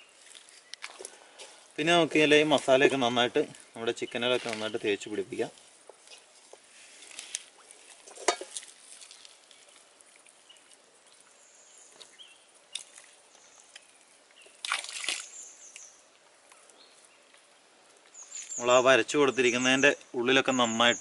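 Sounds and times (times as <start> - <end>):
wet meat squelching and slapping: 7.0 - 9.9, 13.8 - 15.3.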